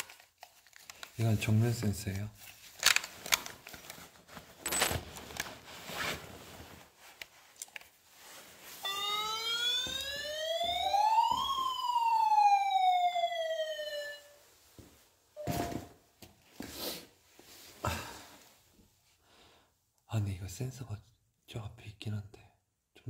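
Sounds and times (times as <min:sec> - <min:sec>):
electronic siren whoop: 0:08.8 - 0:14.4.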